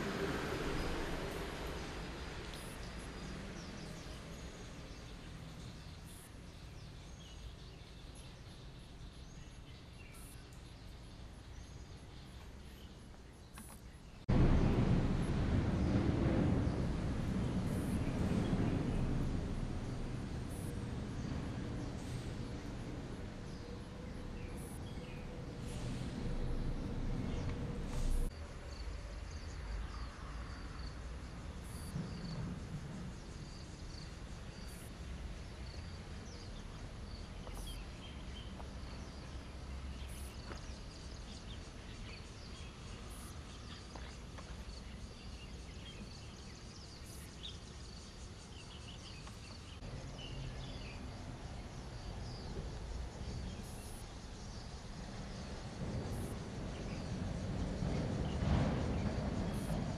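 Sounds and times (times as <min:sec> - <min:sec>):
faint high chirps and ticks: 0:00.8 - 0:14.3, 0:15.2 - 0:59.9
steady low rumble: 0:14.2 - 0:59.9.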